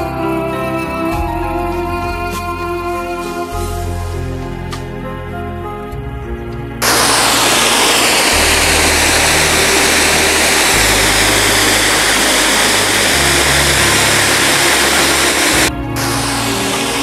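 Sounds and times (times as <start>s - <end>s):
background music with low notes: 0.0s - 17.0s
slow sweeping whoosh: 6.7s - 17.0s
loud rushing noise: 6.8s - 17.0s.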